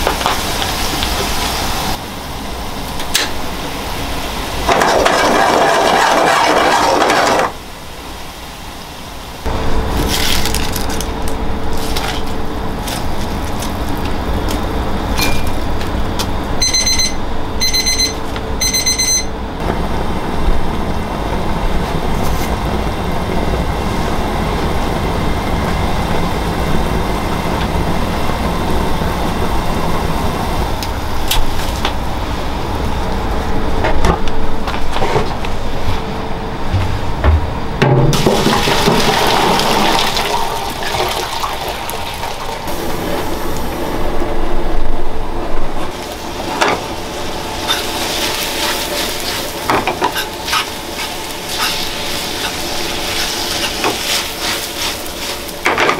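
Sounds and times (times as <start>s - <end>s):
oil sizzling in a frying pan: 0.0s - 2.0s, 45.9s - 55.9s
kitchen rumbling roar: 0.0s - 8.2s, 19.4s - 55.9s
kitchen timer beeping: 16.6s - 19.4s.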